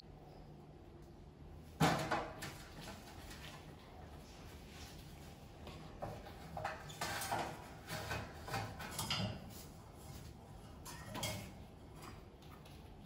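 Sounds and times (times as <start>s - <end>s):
knocks and scrapes on metal shelf: 6.0s - 12.2s.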